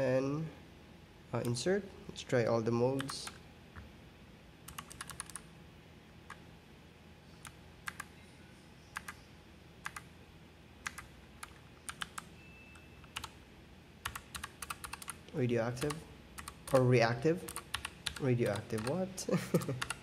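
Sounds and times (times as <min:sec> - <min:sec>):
mechanical keyboard clicks: 0:04.7 - 0:05.4, 0:10.8 - 0:12.3, 0:13.0 - 0:13.3, 0:14.0 - 0:15.2, 0:15.8 - 0:16.9, 0:17.5 - 0:19.0, 0:19.8 - 0:20.0.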